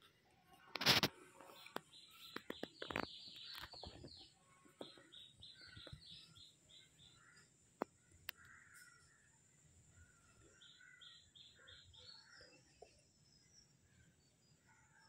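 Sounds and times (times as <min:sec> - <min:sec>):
faint clicks: 0:07.8 - 0:08.6.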